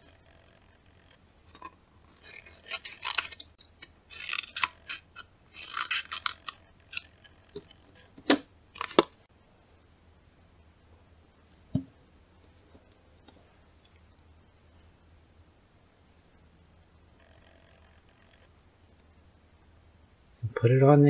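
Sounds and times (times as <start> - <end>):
scissors snipping paper plate: 4.1 - 7.1.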